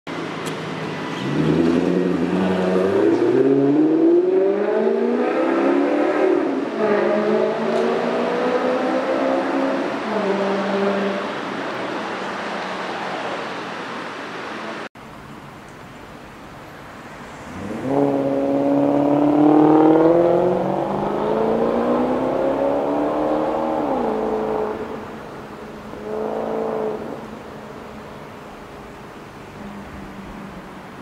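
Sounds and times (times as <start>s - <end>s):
car exhaust accelerating: 17.2s - 27.8s.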